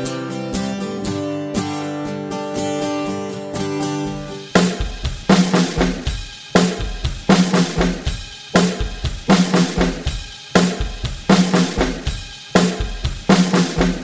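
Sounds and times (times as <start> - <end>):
drum kit playing a beat: 3.6 - 14.0.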